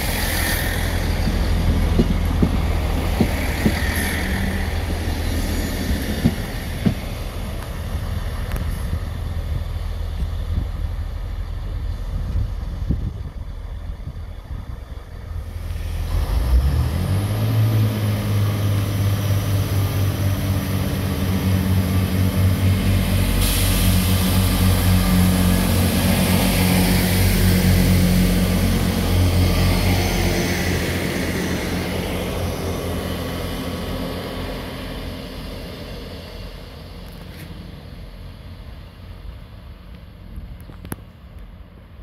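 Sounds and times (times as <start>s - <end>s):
diesel train engine drone: 0.0s - 42.0s
high hiss: 22.6s - 28.6s.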